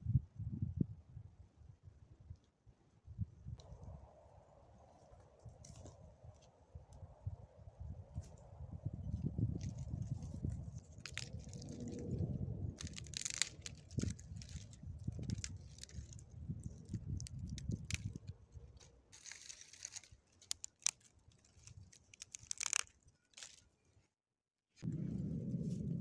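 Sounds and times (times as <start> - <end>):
twigs crunching and snapping: 5.4 - 7.0, 9.1 - 23.9
low rumble: 8.7 - 18.3, 24.8 - 26.0.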